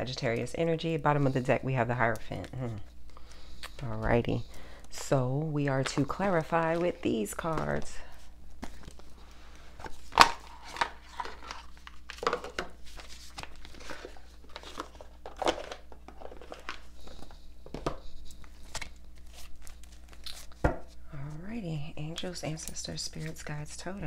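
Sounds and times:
low electrical hum: 0:00.0 - 0:24.0
cards being shuffled: 0:05.8 - 0:21.0.

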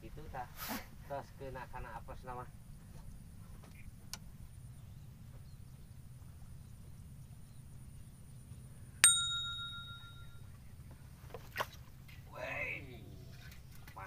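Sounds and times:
low steady rumble: 0:01.6 - 0:13.9
bright bell ding: 0:09.0 - 0:10.5.

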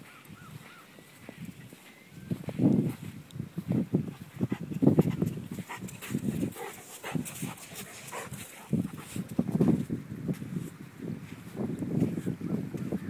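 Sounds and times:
dog sniffing and breathing: 0:04.2 - 0:09.4.

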